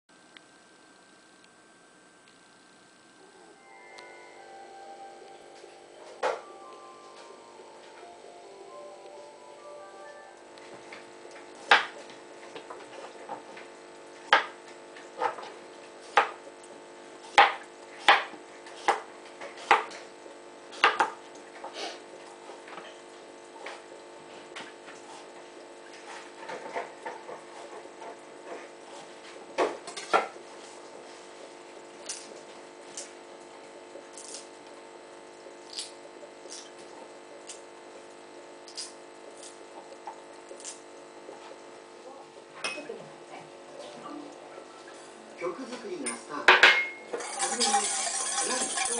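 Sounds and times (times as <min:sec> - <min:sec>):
knife chopping on cutting board: 0:11.6 - 0:12.0, 0:14.3 - 0:14.6, 0:16.1 - 0:16.4, 0:17.3 - 0:20.0, 0:20.8 - 0:21.2.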